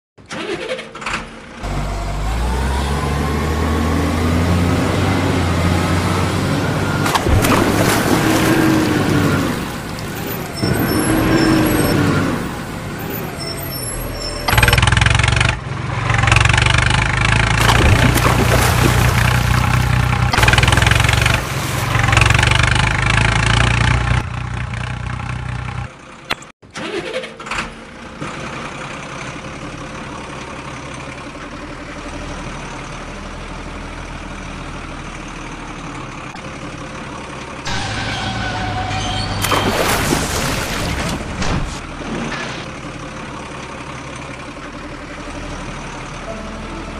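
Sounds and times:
truck engine hum: 0.2s - 46.9s.

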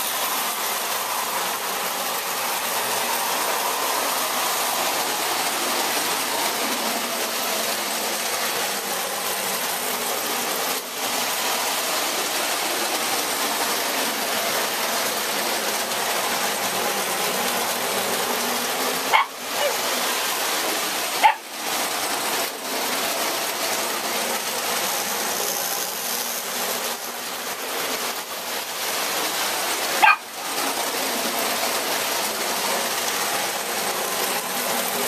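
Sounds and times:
toy trains motor and wheel noise: 0.0s - 35.0s.

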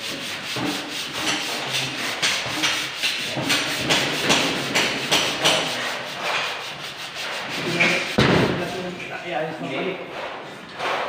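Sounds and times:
sandpaper rasping on wall: 0.0s - 9.1s.

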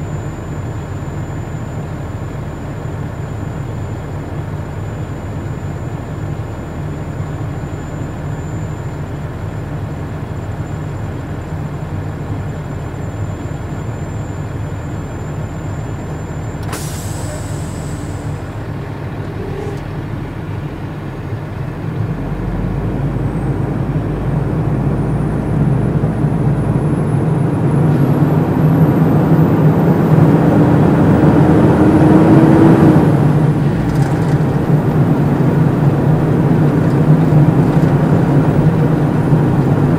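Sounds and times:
diesel truck engine: 0.0s - 39.9s
air brake hiss: 16.6s - 18.4s.

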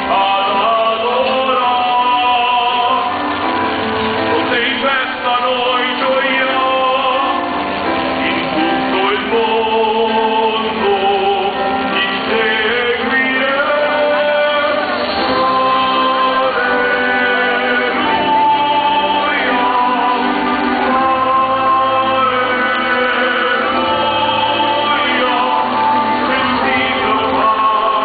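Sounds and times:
musical accompaniment: 0.0s - 28.0s
choir singing a hymn: 5.7s - 28.0s.

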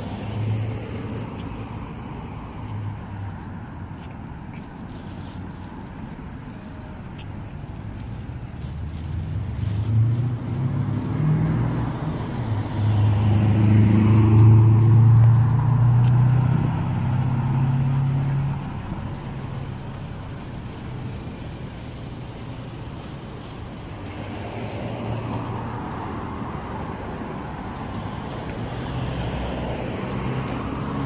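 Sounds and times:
vehicle driving past: 8.9s - 20.1s.

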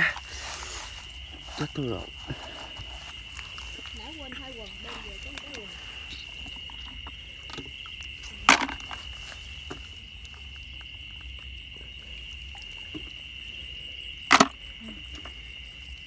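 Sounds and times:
crickets chirring: 0.0s - 16.0s
snails clattering into plastic bucket: 3.0s - 10.3s, 14.2s - 15.4s.

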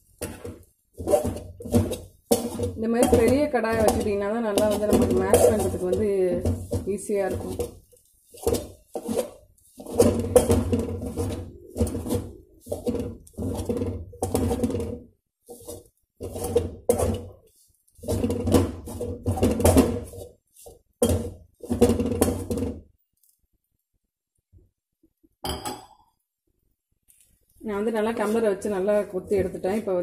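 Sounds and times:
steel tumbler pounding in metal pan: 0.1s - 15.0s, 18.0s - 20.2s, 21.0s - 22.8s.

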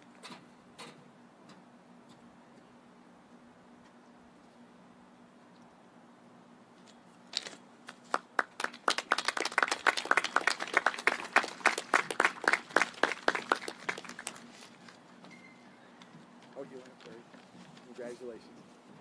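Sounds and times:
group clapping: 7.8s - 14.7s.

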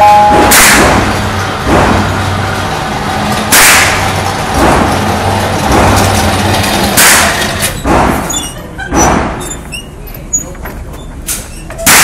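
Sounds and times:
target carrier motor hum: 0.0s - 9.0s.

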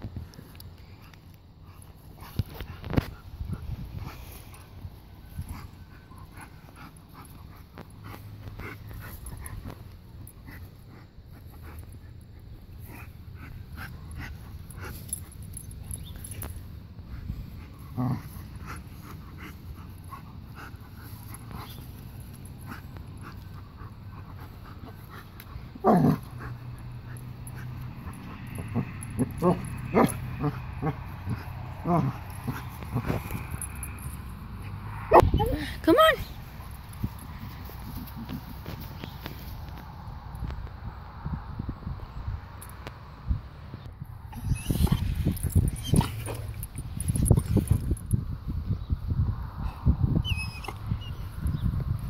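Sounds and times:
clicks and rustles in grass: 0.0s - 34.4s, 36.2s - 40.8s, 44.4s - 48.4s
dog whining and yipping: 44.3s - 47.8s, 50.1s - 51.6s.

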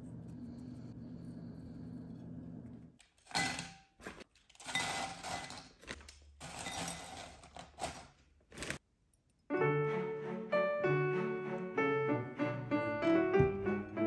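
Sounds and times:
chips clattering into ceramic bowl: 3.2s - 8.1s
piano music: 9.5s - 14.0s.

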